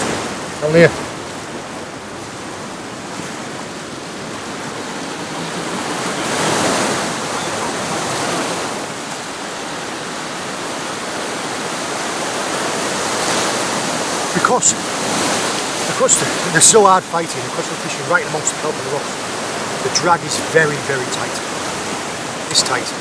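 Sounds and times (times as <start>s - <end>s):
sea waves breaking on rocks: 0.0s - 23.0s.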